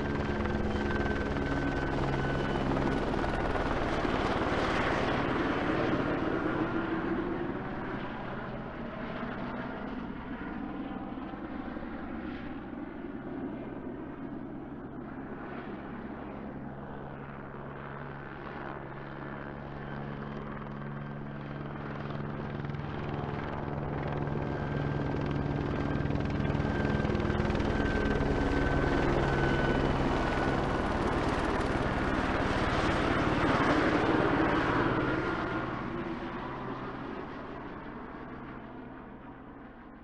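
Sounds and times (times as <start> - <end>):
helicopter rotor chopping: 17.8 - 38.4.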